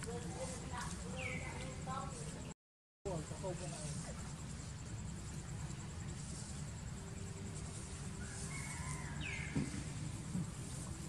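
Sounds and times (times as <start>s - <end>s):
high insect drone: 3.1s - 11.0s
short thump: 9.5s - 10.5s.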